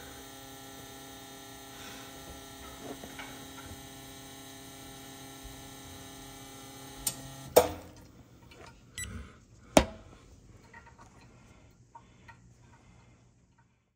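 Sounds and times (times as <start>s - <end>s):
espresso pump humming: 0.0s - 8.1s.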